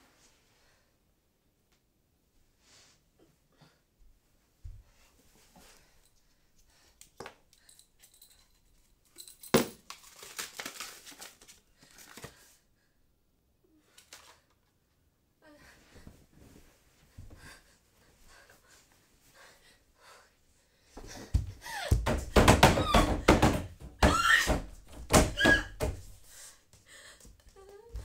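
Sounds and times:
rustling and crinkling: 0:08.2 - 0:12.6.

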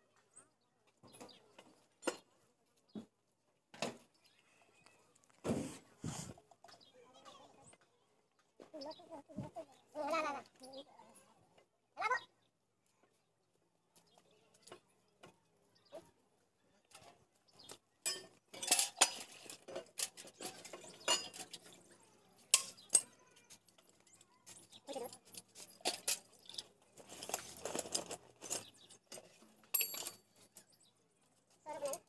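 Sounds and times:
metal tools clinking: 0:16.9 - 0:32.0.

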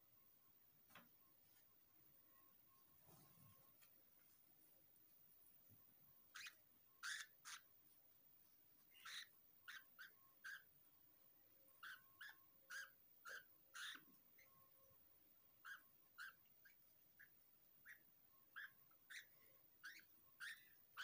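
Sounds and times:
budgerigar chirping: 0:06.3 - 0:07.7, 0:08.9 - 0:10.7, 0:11.8 - 0:14.5, 0:15.6 - 0:21.0.

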